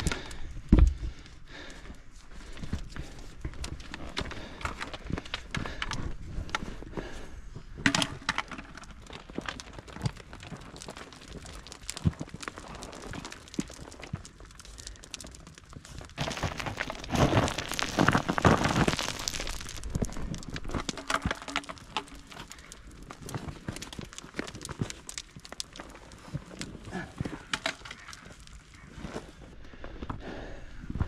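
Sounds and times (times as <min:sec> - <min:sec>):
small stone clicks and knocks: 0:02.6 - 0:06.8, 0:07.7 - 0:29.4
boots crunching on gravel: 0:16.2 - 0:22.4.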